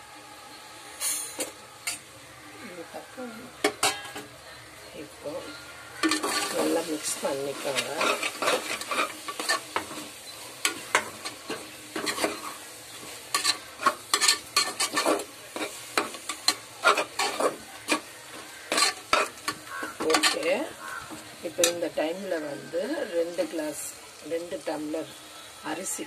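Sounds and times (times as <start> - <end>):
low sizzle of frying: 0.0 - 26.0
spoon scraping metal pot: 6.0 - 21.8.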